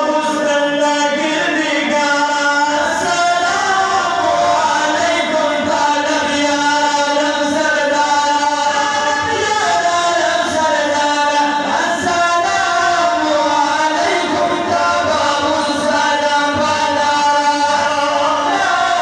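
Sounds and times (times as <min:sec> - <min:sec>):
men chanting: 0:00.0 - 0:19.0.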